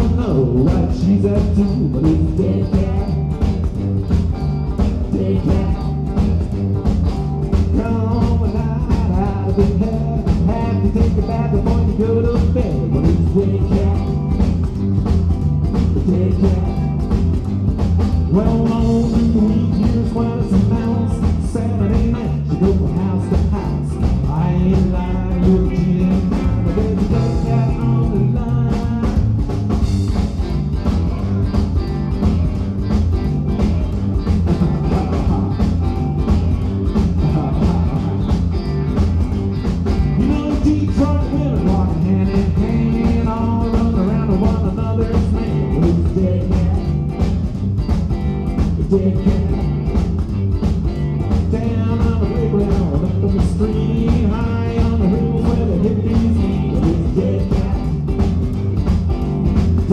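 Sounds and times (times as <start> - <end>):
person singing: 0.0 - 3.6, 4.9 - 6.4, 7.7 - 14.4, 15.8 - 17.1, 18.3 - 29.4, 34.4 - 36.0, 37.0 - 38.6, 40.1 - 47.2, 48.7 - 50.0, 51.4 - 58.2
drums: 0.0 - 59.9
electric guitar: 0.0 - 59.9
upright double bass: 0.0 - 59.9.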